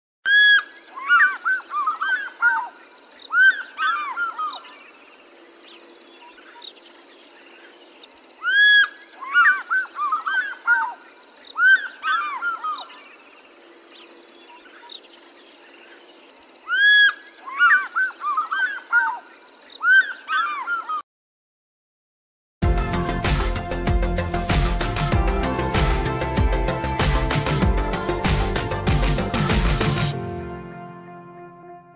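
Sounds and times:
fish eagle calling: 8.4s - 11.0s, 11.6s - 13.0s, 16.7s - 19.2s, 19.8s - 21.0s.

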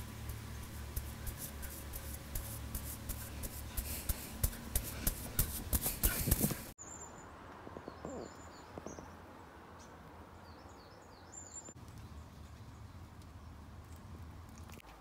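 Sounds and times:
rustling: 0.0s - 6.8s
small birds chirping: 0.0s - 14.8s.

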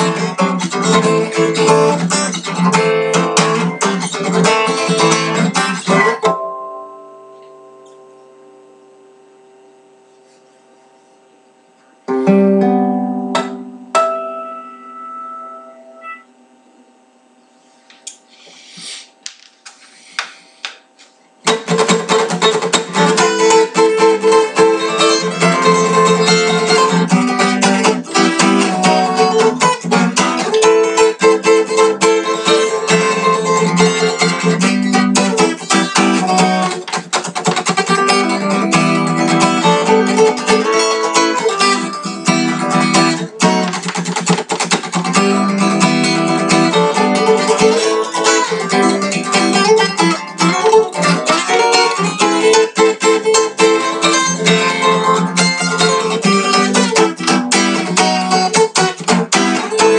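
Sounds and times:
acoustic guitar chords: 0.0s - 17.2s, 20.3s - 59.9s.

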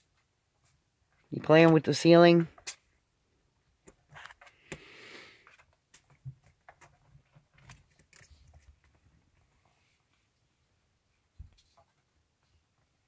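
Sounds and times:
kittens scrambling and scratching: 5.3s - 10.3s
soft rustling: 5.4s - 13.0s.

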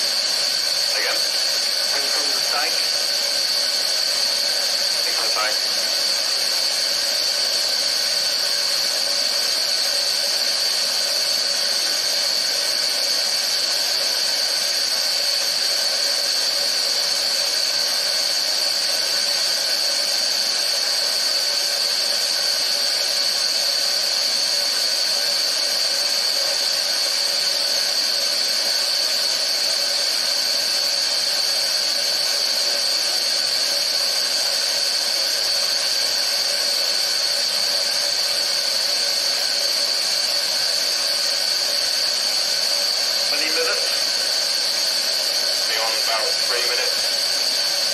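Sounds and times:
high-pitched gas hiss: 0.0s - 47.9s.

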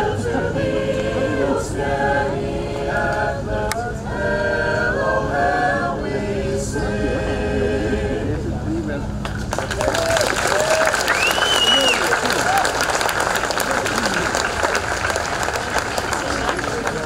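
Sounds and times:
chorus singing: 0.0s - 8.8s.

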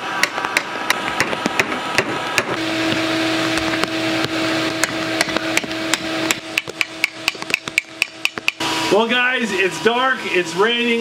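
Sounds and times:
steady hiss and low hum: 0.0s - 11.0s
hammer striking steel on anvil: 4.8s - 8.6s.

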